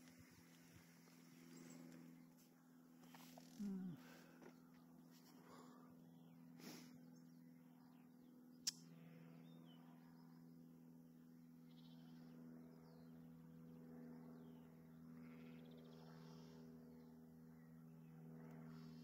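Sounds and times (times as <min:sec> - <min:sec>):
faint low hum: 0:00.0 - 0:19.0
sharp click: 0:08.6 - 0:08.9.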